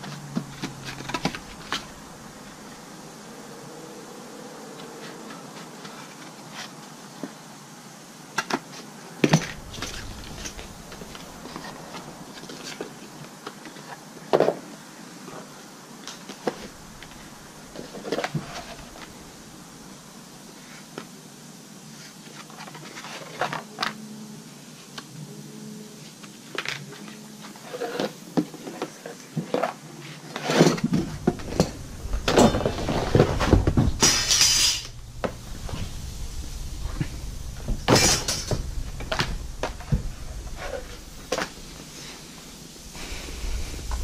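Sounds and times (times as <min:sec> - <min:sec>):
rustles clicks and knocks: 0:00.0 - 0:02.2, 0:30.4 - 0:44.0.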